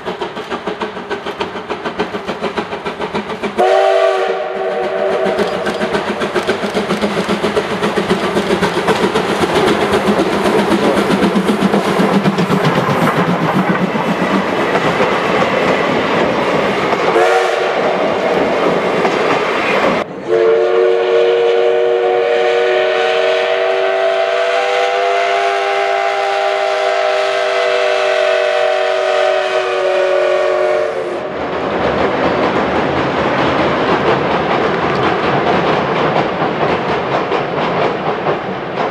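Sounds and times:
train coaches clickety-clack: 0:00.0 - 0:38.9
train rumbling: 0:00.0 - 0:38.9
steam locomotive whistle: 0:03.6 - 0:06.4, 0:17.1 - 0:18.2, 0:19.7 - 0:31.4.

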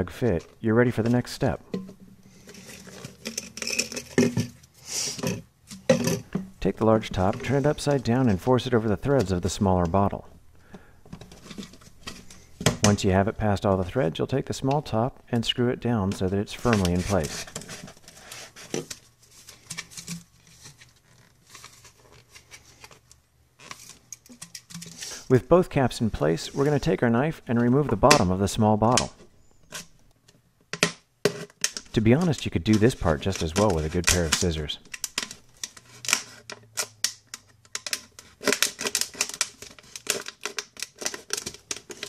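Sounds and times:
knife cutting plastic bottle: 0:31.3 - 0:42.0.

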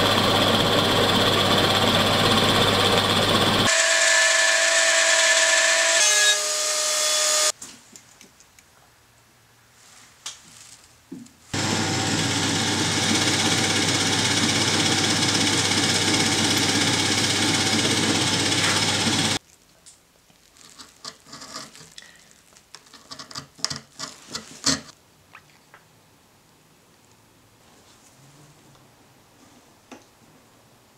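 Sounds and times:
drill press cutting wood: 0:00.0 - 0:07.5, 0:11.6 - 0:19.4.

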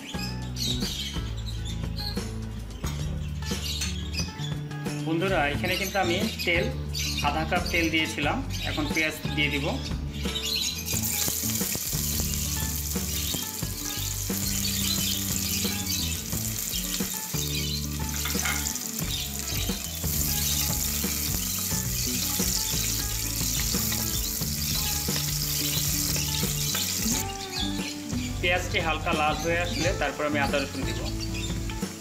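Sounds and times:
onions sizzling in hot oil: 0:10.7 - 0:28.7, 0:29.4 - 0:32.0.

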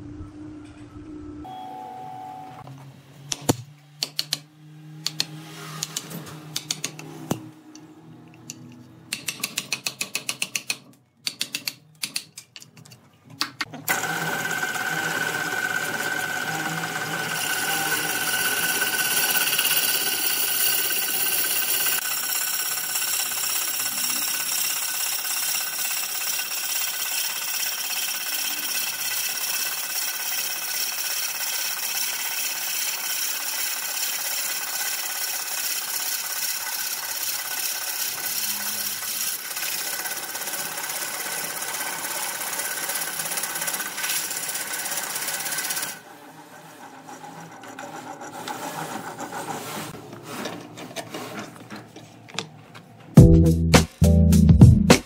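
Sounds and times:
wood lathe tool scraping wood: 0:13.9 - 0:51.7.

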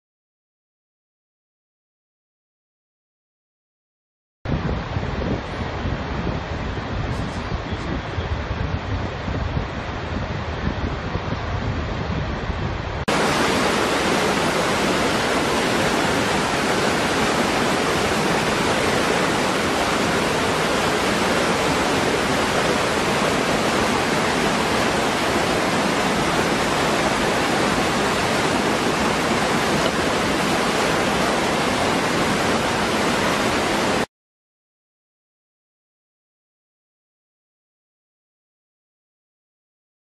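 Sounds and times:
waterfall pouring into pool: 0:13.1 - 0:34.1.

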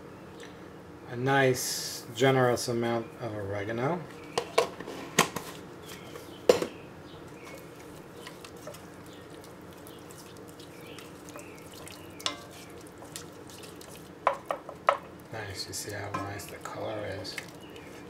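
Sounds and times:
wooden spoon stirring thick sauce: 0:07.3 - 0:18.0
spoon knocking on pot: 0:12.2 - 0:12.7, 0:14.2 - 0:15.1.

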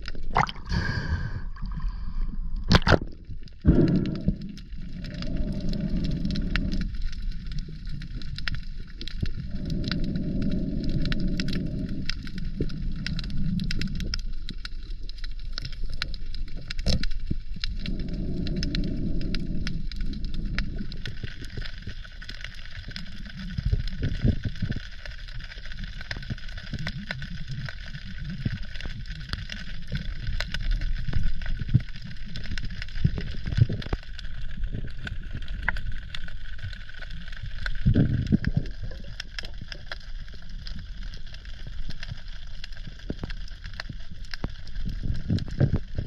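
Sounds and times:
muffled low rumbling: 0:00.0 - 0:22.1
fine underwater clicks: 0:00.0 - 0:46.0.

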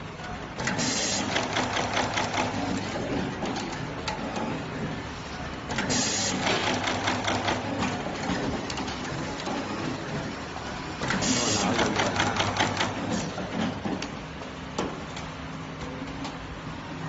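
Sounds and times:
steady machine hum: 0:00.0 - 0:17.0
rapid mechanical clicking and clacking: 0:00.2 - 0:05.0, 0:05.7 - 0:14.2.

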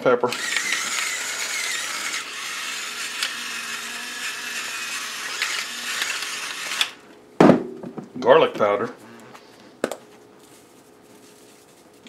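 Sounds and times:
electric pepper mill whirring: 0:00.3 - 0:07.0.

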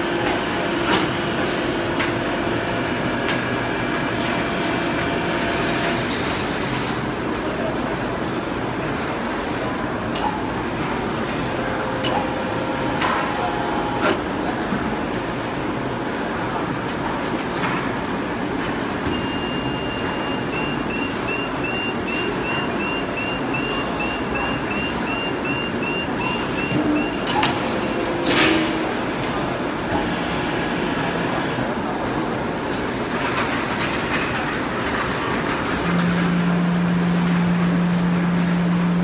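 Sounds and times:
woodworking machinery running: 0:22.8 - 0:39.0.

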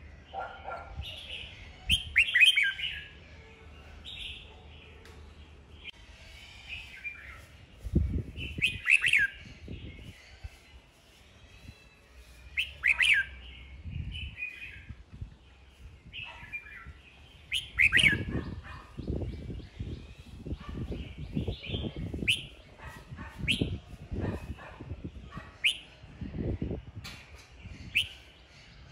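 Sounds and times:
bird whistled song: 0:01.4 - 0:03.1, 0:06.4 - 0:10.6, 0:11.6 - 0:13.4, 0:16.2 - 0:24.5, 0:25.6 - 0:26.0, 0:27.8 - 0:28.3.

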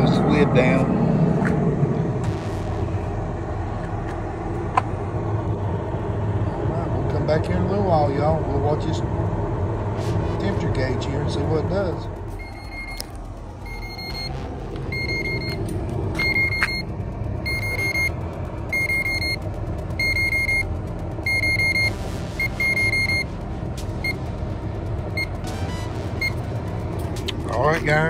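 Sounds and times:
steady low rumble: 0:00.0 - 0:28.0
thermometer alarm beeping: 0:12.2 - 0:26.6.

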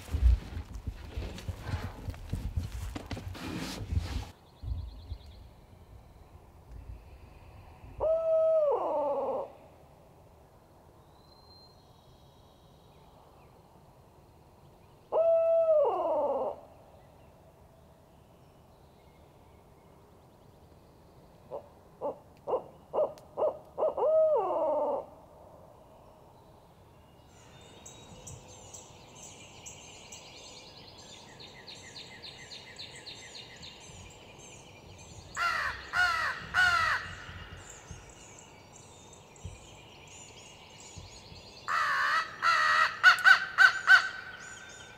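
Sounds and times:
owl hooting: 0:08.0 - 0:09.6, 0:22.0 - 0:25.1
birds singing: 0:27.1 - 0:44.9
crow cawing: 0:35.4 - 0:37.3, 0:41.7 - 0:44.2.

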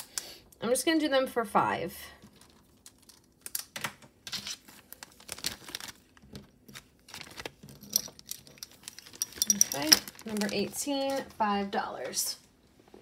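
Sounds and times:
plastic packaging crinkling: 0:02.2 - 0:11.4.

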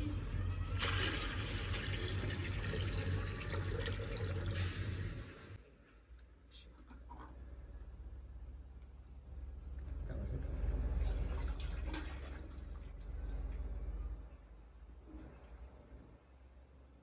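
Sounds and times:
water pouring: 0:00.6 - 0:05.6, 0:11.0 - 0:12.8.

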